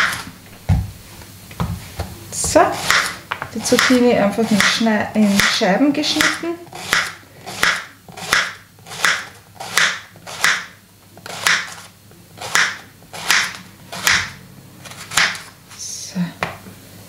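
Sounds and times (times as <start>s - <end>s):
knife slicing on plastic board: 6.2s - 15.5s.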